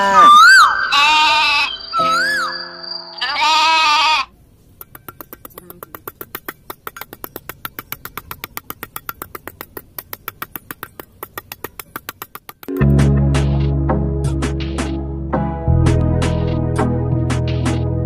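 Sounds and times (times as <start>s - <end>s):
short bleat: 3.2s - 4.3s.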